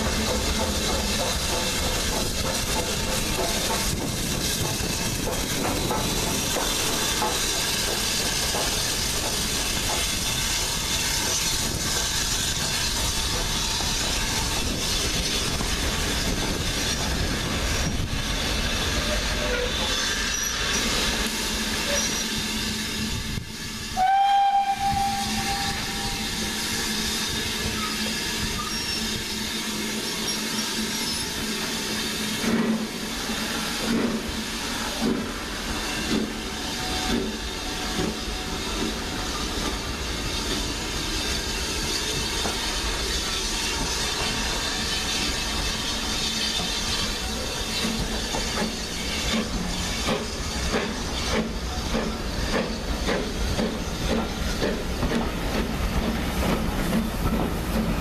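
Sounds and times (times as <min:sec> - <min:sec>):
steam hissing: 0:00.0 - 0:58.0
steam locomotive whistle: 0:21.8 - 0:29.4.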